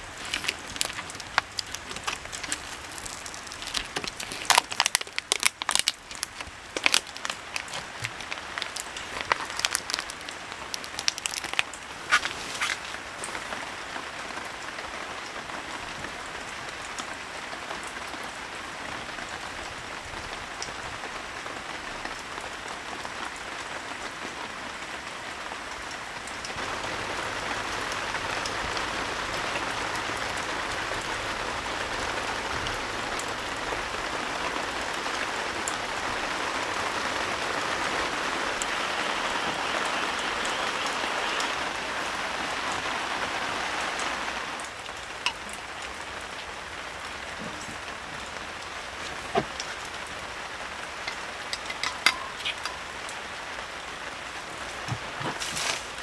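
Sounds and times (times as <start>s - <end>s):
plastic wrapper crinkling: 0.0s - 13.4s
steady rain: 0.0s - 56.0s.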